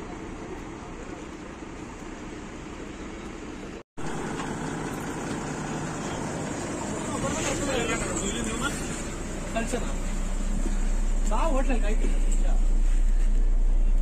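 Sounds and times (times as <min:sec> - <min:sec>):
bus engine and road noise: 0:00.0 - 0:14.0.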